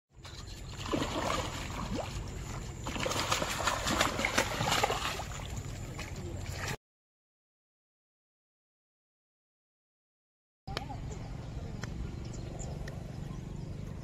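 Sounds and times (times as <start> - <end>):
fish splashing in water: 0.2 - 6.8.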